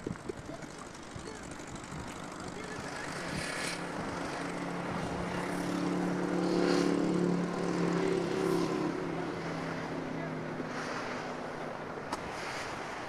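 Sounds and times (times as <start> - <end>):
aircraft engine drone: 0.0 - 9.3.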